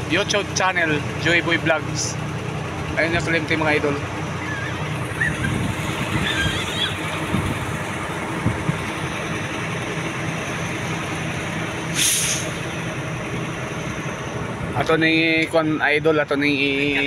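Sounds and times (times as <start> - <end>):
vehicle engine and road noise: 0.0 - 17.0
short hiss: 11.9 - 12.6.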